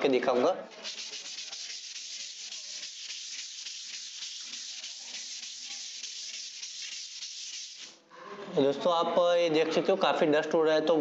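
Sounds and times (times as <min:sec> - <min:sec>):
sandpaper rasping on wall: 0:00.8 - 0:08.0.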